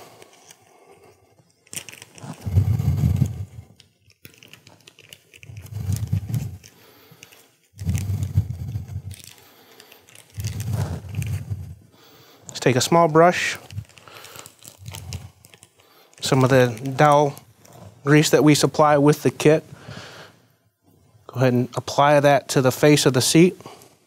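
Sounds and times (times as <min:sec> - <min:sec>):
plastic packet crinkling and tearing: 0:00.0 - 0:00.7, 0:01.3 - 0:19.6.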